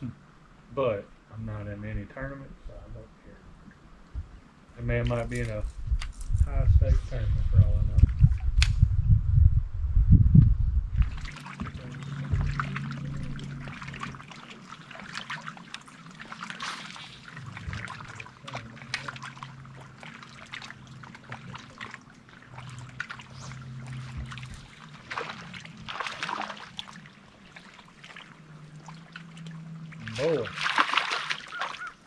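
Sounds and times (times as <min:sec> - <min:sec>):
small waves lapping against hull: 0:10.9 - 0:32.0.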